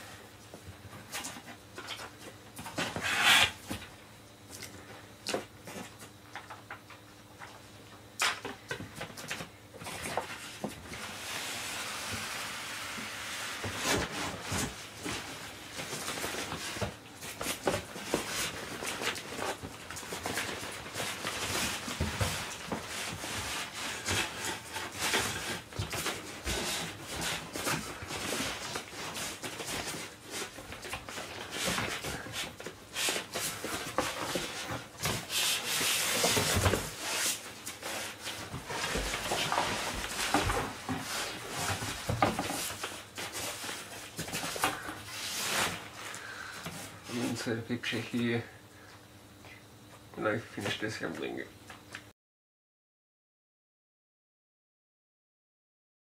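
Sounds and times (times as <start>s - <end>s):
foam rubbing against cardboard box: 3.0s - 3.6s, 11.0s - 15.4s, 31.5s - 45.9s
knocks and rustles: 13.6s - 45.9s.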